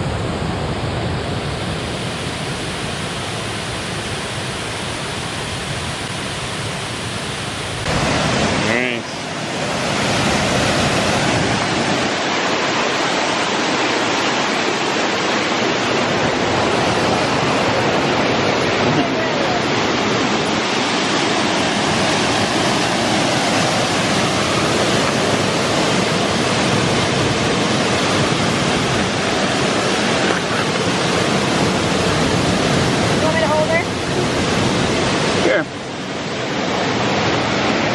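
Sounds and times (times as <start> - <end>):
waterfall and rapids rushing: 0.0 - 37.9.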